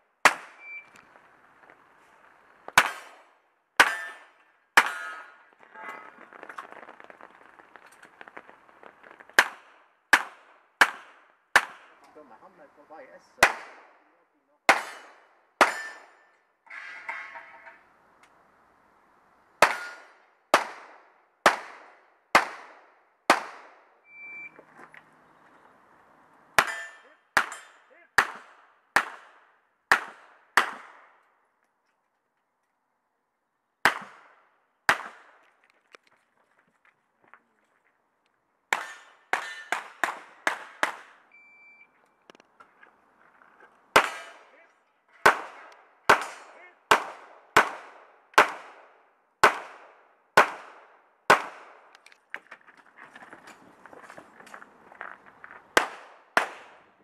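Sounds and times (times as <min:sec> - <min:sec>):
short high beeps: 0:00.6 - 0:01.0, 0:24.1 - 0:24.6, 0:41.3 - 0:41.9.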